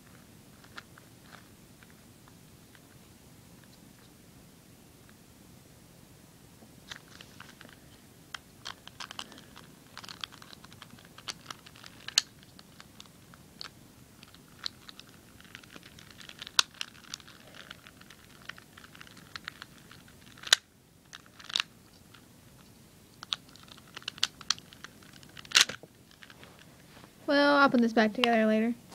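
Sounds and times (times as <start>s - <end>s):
plastic cube pieces clicking: 8.6s - 22.2s, 23.2s - 26.4s.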